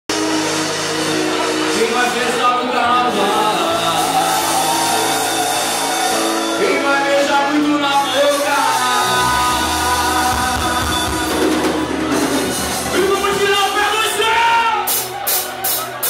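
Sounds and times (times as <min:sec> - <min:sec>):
lead singer: 0:00.1 - 0:15.2
live band amplified music: 0:00.1 - 0:16.0
deep bass: 0:07.4 - 0:14.4.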